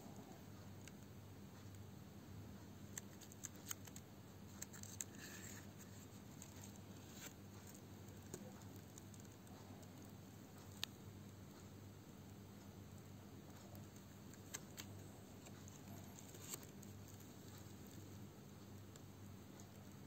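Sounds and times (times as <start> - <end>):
faint low hum: 0.0 - 20.0
paper scroll crinkling: 2.9 - 9.7, 13.6 - 18.3.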